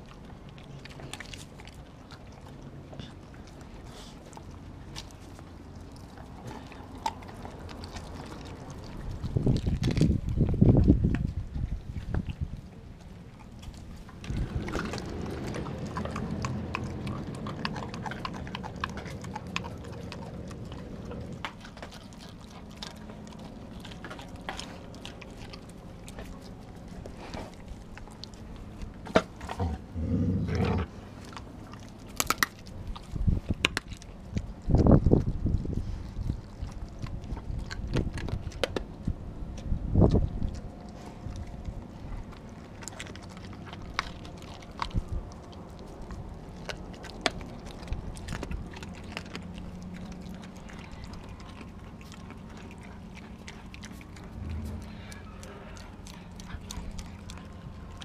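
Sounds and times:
dog chewing and crunching bones: 0.0s - 58.0s.

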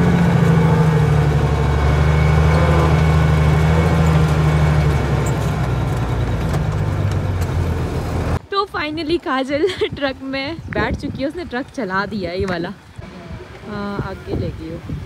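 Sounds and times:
truck engine heard from cab: 0.0s - 8.4s.

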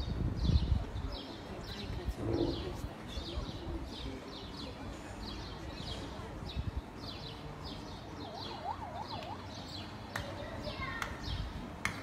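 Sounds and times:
small birds chirping: 0.4s - 11.6s
emergency siren wailing: 8.0s - 9.7s.

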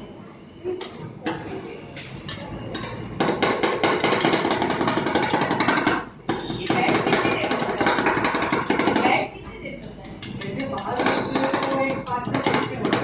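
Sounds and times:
metal spatulas chopping on steel: 2.0s - 9.2s, 9.8s - 13.0s.

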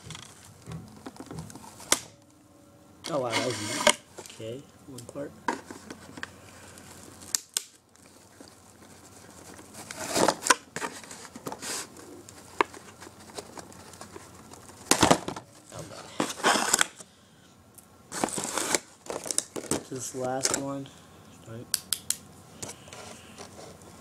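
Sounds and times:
packaging crinkling and tearing: 6.7s - 17.1s, 18.1s - 20.7s.

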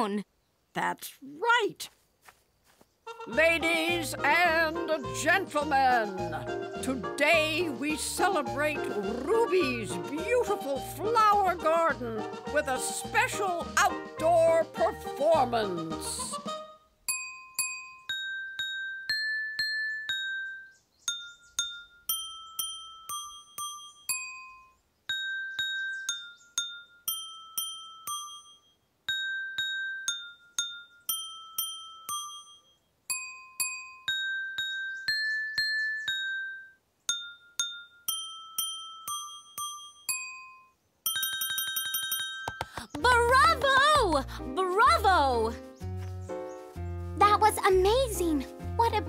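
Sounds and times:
water glasses struck with mallets: 17.1s - 42.5s.

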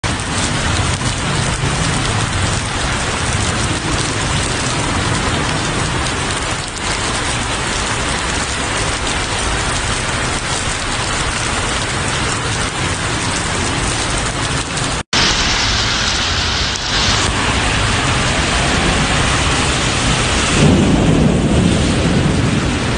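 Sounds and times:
heavy rain on road: 0.0s - 22.9s.

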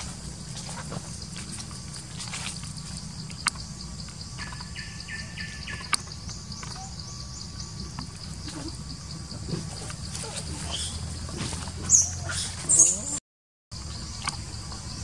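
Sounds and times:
bird calling repeated notes: 4.4s - 7.1s.

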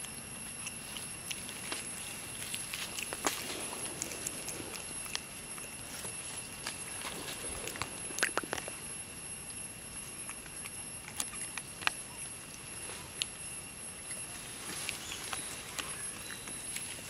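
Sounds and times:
high-pitched insect drone: 0.0s - 17.0s
rustles in dry leaves: 0.8s - 8.2s, 14.1s - 17.0s.

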